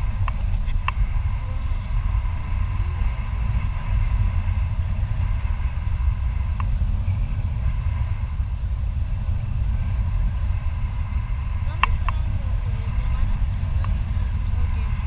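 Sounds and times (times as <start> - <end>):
faint whistling tones: 0.0 - 8.6
wind buffeting microphone: 0.0 - 15.0.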